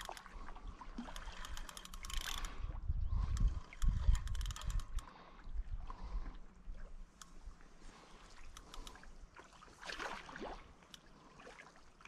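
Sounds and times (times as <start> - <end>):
fishing reel ratcheting: 0.0 - 0.3, 1.1 - 2.6, 3.3 - 5.0.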